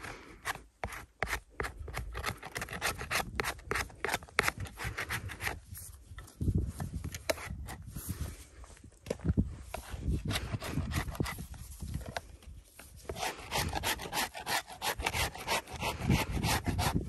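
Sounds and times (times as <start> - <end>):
putty knife scraping chalk: 0.0 - 5.9, 9.7 - 17.0.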